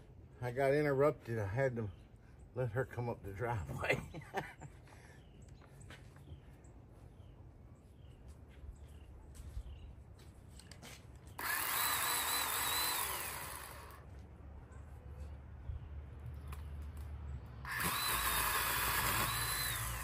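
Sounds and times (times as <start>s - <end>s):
electric saw motor whine: 11.4s - 14.1s, 17.6s - 20.0s.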